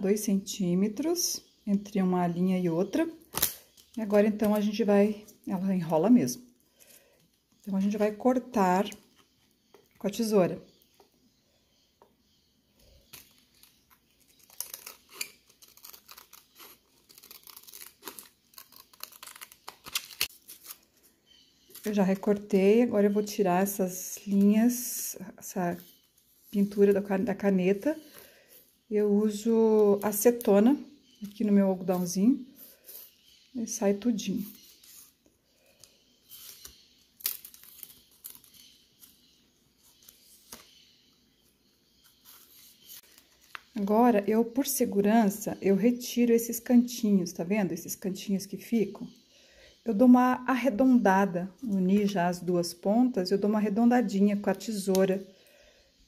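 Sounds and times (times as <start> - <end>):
plastic crinkling: 13.0 - 22.5, 36.3 - 39.2.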